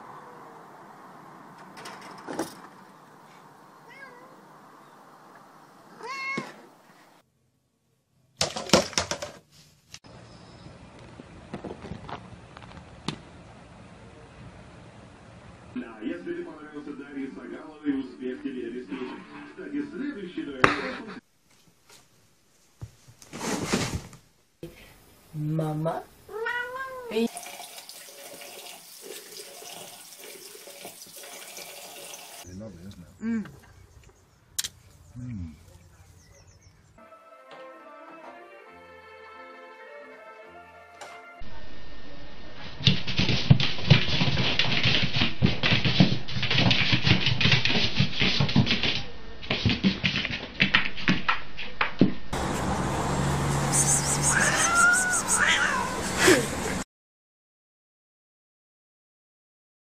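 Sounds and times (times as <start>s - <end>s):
cat meowing: 3.8s - 4.4s, 5.9s - 6.6s, 26.3s - 27.3s, 54.1s - 56.1s
plastic bottle knocked over: 8.4s - 9.4s
faucet running: 27.3s - 32.4s.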